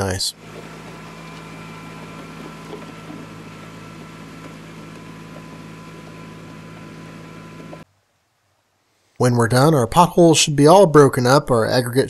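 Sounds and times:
tractor engine running: 0.0 - 7.9
scraper blades over gravel: 0.4 - 7.8.

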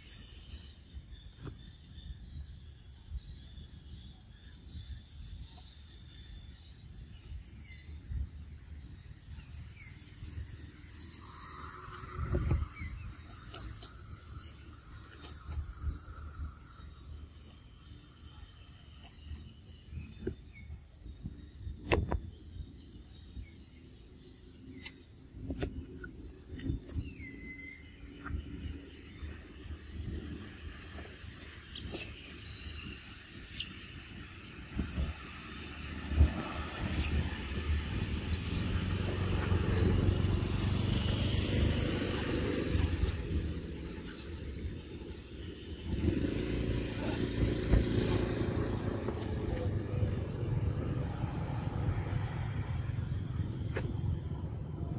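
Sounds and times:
insects chirring: 0.0 - 54.9
low rumbling and rustling: 25.3 - 54.9
vehicle engine passing by: 34.0 - 54.9.

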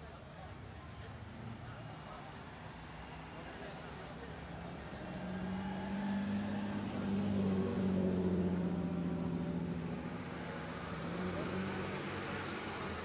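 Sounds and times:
car engine at low revs: 1.4 - 13.0.

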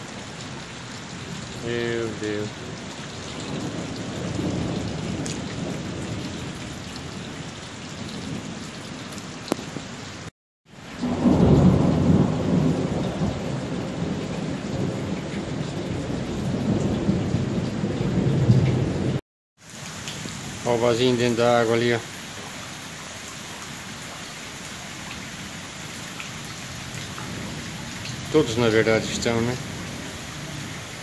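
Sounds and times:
heavy rain on water: 0.0 - 31.0
thunder rolling: 3.3 - 6.7, 11.0 - 19.2.

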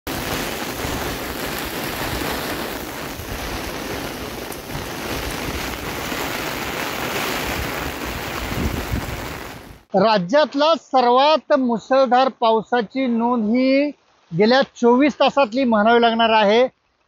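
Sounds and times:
heavy rain falling: 0.0 - 9.9.

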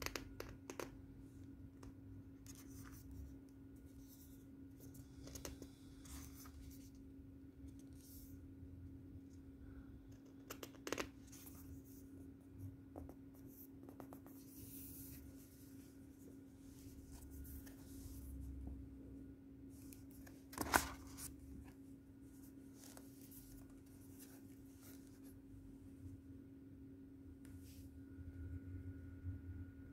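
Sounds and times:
steady low hum: 11.1 - 29.9
paper rustling: 19.8 - 21.8.

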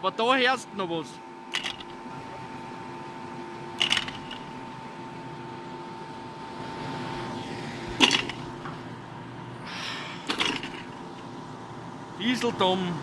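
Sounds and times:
electrical hum with held tones: 0.0 - 13.0.

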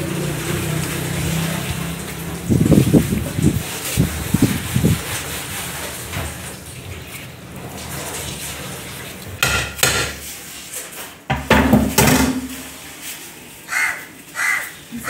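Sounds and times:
cleavers and knives clanking: 9.4 - 10.3.

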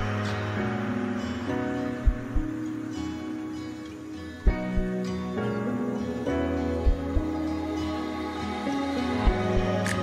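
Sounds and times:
instrumental music: 0.0 - 10.0
short low beats: 2.0 - 2.5.

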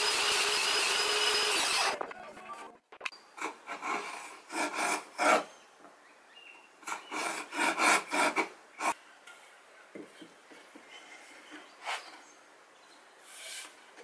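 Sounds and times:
chisel scraping wood: 3.4 - 5.5.

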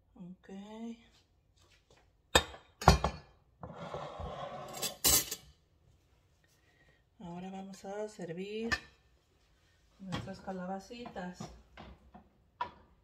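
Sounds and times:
dishes and utensils clinking: 3.9 - 5.6.

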